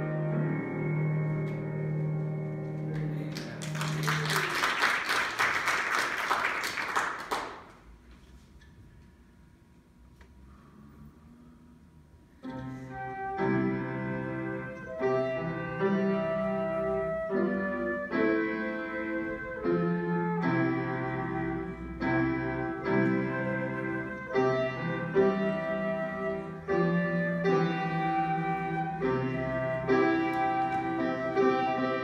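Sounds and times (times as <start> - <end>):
piano chords: 0.0 - 5.0, 12.4 - 32.0
flute melody: 12.8 - 32.0.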